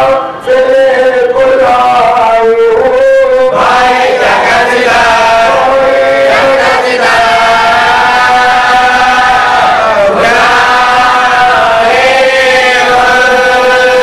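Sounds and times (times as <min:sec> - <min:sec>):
man chanting an elegy: 0:00.0 - 0:03.9
voices chanting in chorus: 0:00.0 - 0:14.0.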